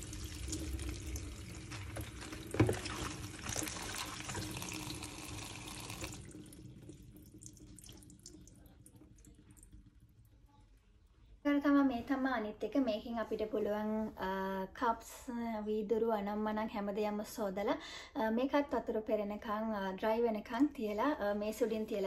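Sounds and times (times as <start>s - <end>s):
tap water running onto leaves: 0.0s - 9.8s
faint water drips: 0.0s - 11.4s.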